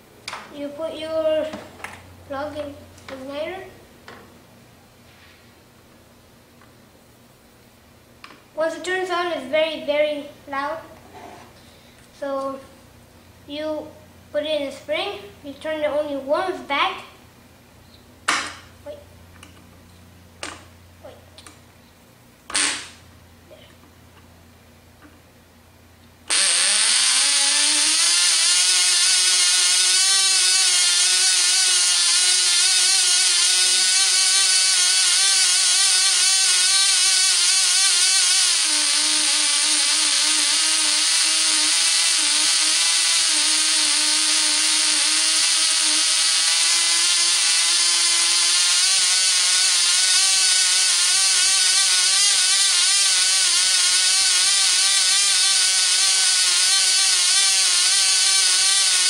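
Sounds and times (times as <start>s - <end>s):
model airplane engine whining: 26.3s - 59.0s.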